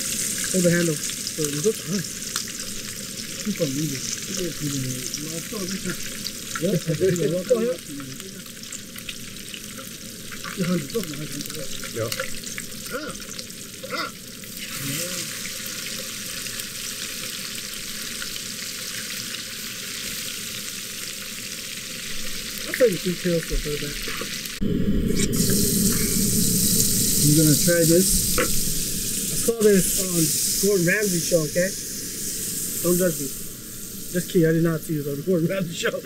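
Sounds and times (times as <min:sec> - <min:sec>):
fish sizzling in oil: 0:00.0 - 0:36.0.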